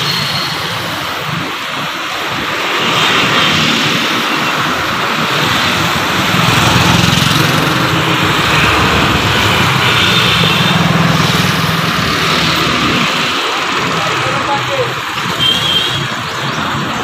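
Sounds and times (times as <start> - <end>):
electric motor with rushing air: 5.3 - 13.7.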